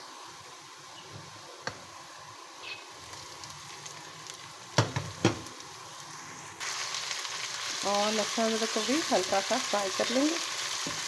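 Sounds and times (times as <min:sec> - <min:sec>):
onions sizzling in oil: 0:00.0 - 0:11.0
sharp knocks in pan: 0:04.8 - 0:05.4.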